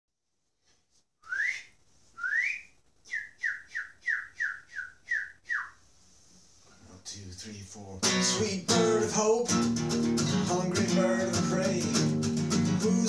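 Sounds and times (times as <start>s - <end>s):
person whistling birdlike call: 1.2s - 5.8s.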